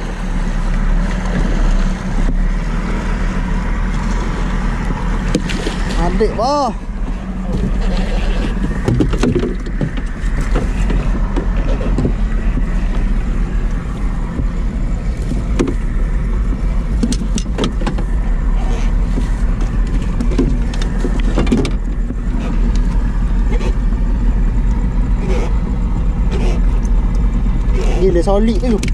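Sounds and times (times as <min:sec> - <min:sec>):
boat motor humming: 0:00.0 - 0:28.9.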